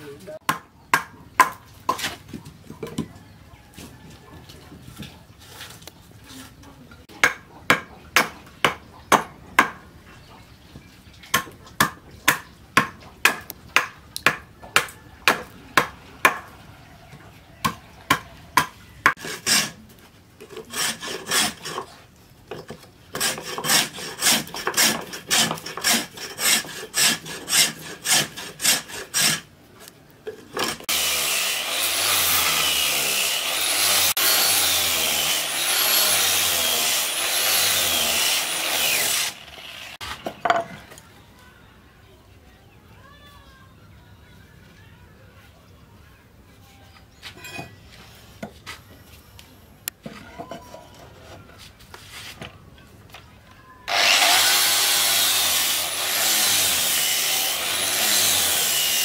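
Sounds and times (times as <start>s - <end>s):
hand tool chopping wood: 0.4s - 2.4s, 7.2s - 9.8s, 11.3s - 16.5s
rasping at wood: 19.0s - 19.8s, 20.5s - 22.0s, 23.1s - 29.5s
angle grinder sanding wood: 20.6s - 22.0s, 23.2s - 29.5s, 30.6s - 40.2s, 53.9s - 59.0s.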